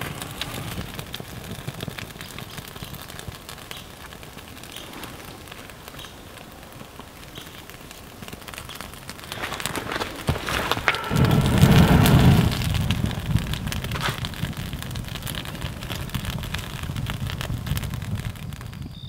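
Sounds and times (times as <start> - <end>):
rain falling: 0.0 - 18.9
thunder clap and rumble: 7.7 - 18.6.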